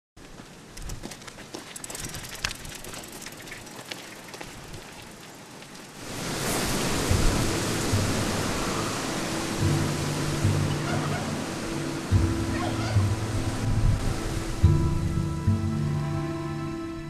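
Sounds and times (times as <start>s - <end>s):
footsteps on dry dirt: 0.2s - 5.9s
cart wheels crunching on dirt: 0.2s - 8.4s.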